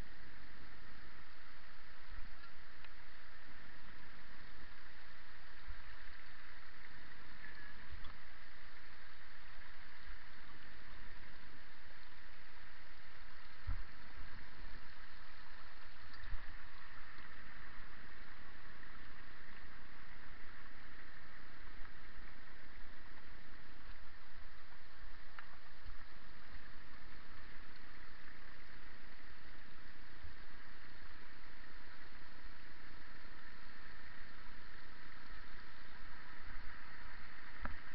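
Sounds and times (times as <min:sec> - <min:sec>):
mountain stream rushing: 0:00.0 - 0:37.9.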